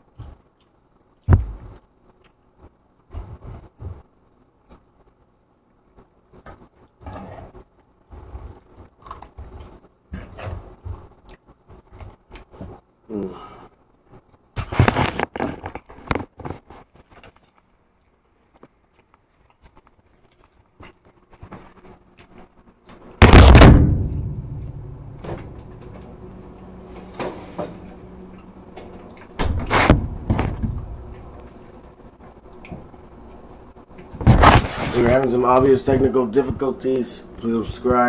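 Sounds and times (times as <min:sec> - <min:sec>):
heavy thump: 0:23.2 - 0:27.9, 0:29.4 - 0:31.2, 0:34.2 - 0:34.7
knocks of objects handled: 0:23.6 - 0:26.2, 0:29.4 - 0:31.4.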